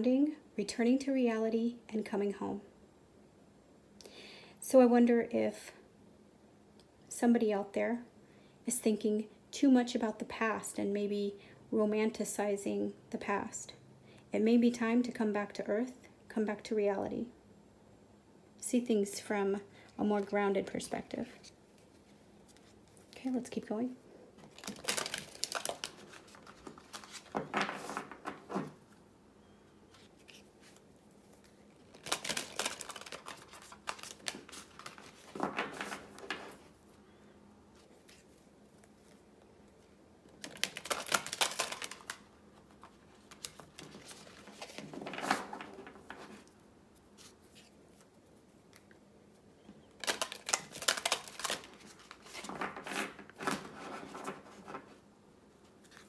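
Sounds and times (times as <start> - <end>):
cards being shuffled: 24.4 - 28.8, 29.9 - 36.7, 37.8 - 48.9, 50.0 - 55.0.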